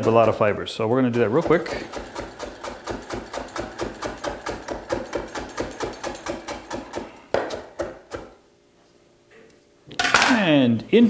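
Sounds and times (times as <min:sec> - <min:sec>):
knife chopping on wooden board: 0:00.0 - 0:00.5, 0:01.1 - 0:08.4.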